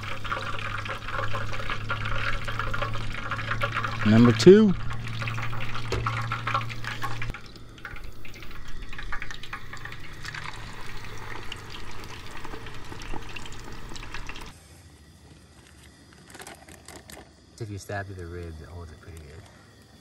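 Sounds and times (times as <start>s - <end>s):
fish deep-frying in oil: 0.0s - 14.6s.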